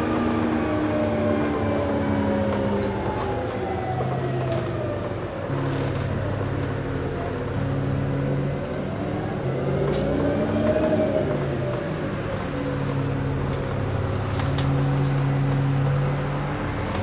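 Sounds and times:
bus drivetrain hum: 0.0s - 17.0s.

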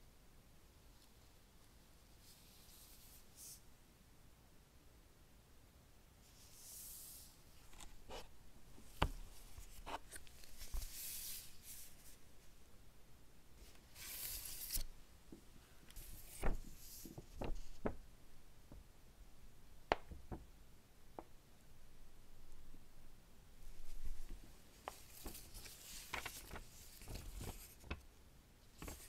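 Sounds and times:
paper and cardboard rustling: 7.7s - 12.2s, 13.6s - 14.9s, 16.0s - 18.0s, 23.8s - 28.1s, 28.8s - 29.0s
sharp taps and knocks: 19.9s - 20.4s.

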